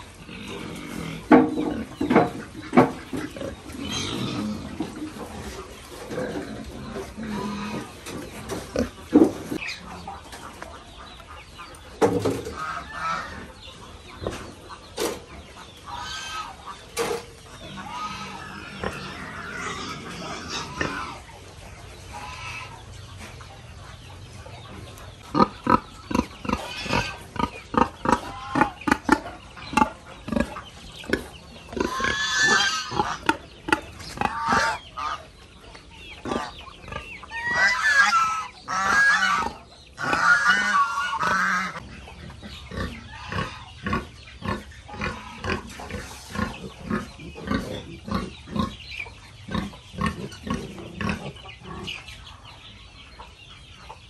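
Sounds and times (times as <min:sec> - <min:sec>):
pigs squealing: 0:00.0 - 0:08.0, 0:12.5 - 0:13.5, 0:15.8 - 0:16.8, 0:17.6 - 0:21.3, 0:25.3 - 0:35.3, 0:36.2 - 0:48.8
pigs grunting: 0:00.0 - 0:10.2, 0:17.6 - 0:21.3, 0:25.2 - 0:35.3, 0:36.2 - 0:52.1.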